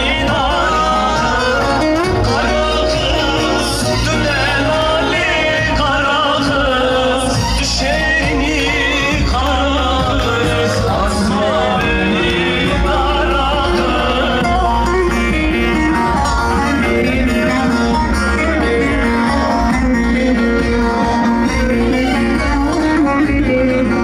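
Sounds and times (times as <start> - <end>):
band playing dance music: 0.0 - 24.0
person singing: 0.0 - 24.0.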